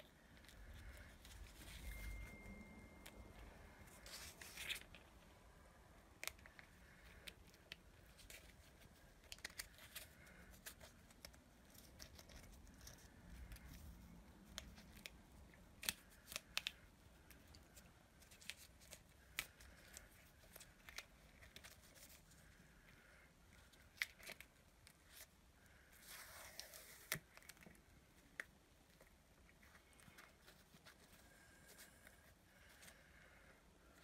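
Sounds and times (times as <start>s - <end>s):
tape crackling and clicking: 0.0s - 25.9s.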